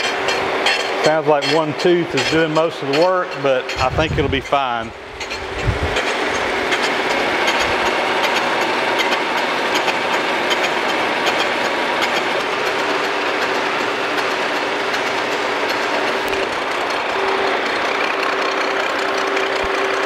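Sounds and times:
milling machine cutting metal: 0.0 - 20.0.

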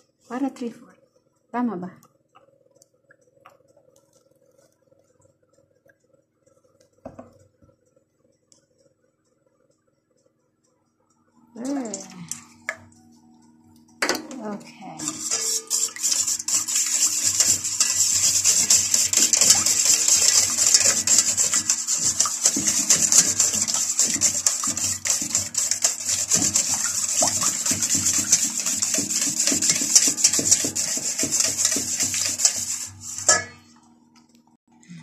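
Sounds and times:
steady low hum: 0.0 - 35.0
spatula scraping batter in bowl: 14.9 - 33.7.

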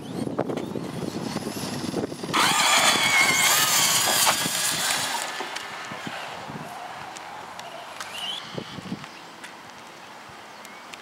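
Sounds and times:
high-pitched rc car motor whine: 0.0 - 7.0, 7.7 - 8.9.

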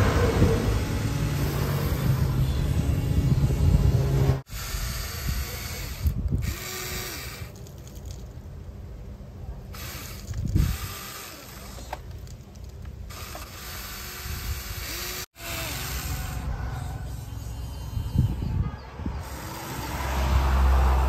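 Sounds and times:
low rumbling noise: 0.0 - 5.0
toy electric motors whining: 0.0 - 8.1, 9.7 - 12.3, 13.1 - 18.6, 19.2 - 20.2.

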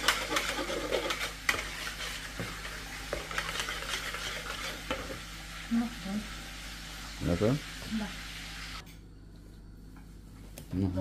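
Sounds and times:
whisk beating eggs in bowl: 0.0 - 5.2.

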